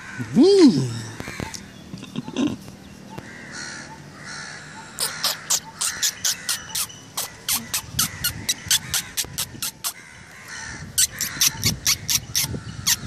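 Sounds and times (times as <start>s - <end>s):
crows cawing: 0.0s - 0.4s, 1.0s - 1.6s, 3.2s - 11.8s.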